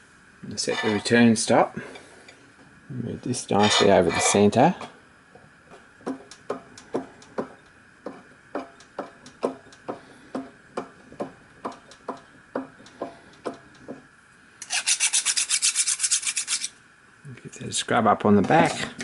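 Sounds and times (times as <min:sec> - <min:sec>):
scrubbing strokes on metal: 0:00.6 - 0:01.2, 0:14.6 - 0:16.8.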